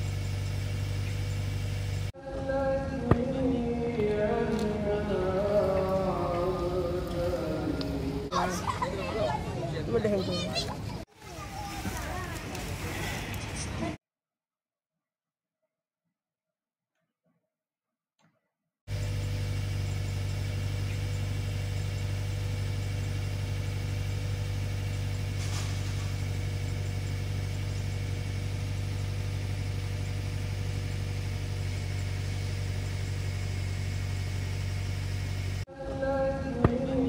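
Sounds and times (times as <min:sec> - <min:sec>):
machine humming: 0:00.0 - 0:08.8, 0:18.9 - 0:37.0.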